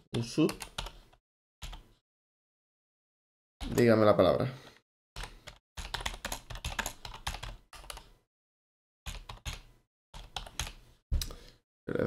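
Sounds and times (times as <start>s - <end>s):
typing on computer keyboard: 5.2s - 8.1s, 9.1s - 9.6s, 10.2s - 10.8s.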